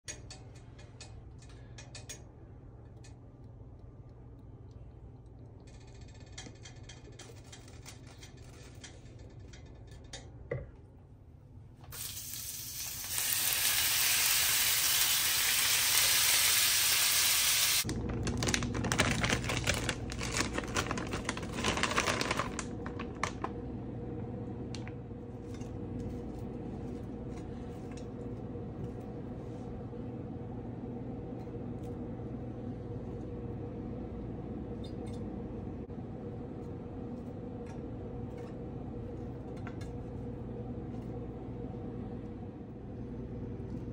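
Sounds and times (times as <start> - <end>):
chicken sizzling in frying pan: 12.0 - 17.9.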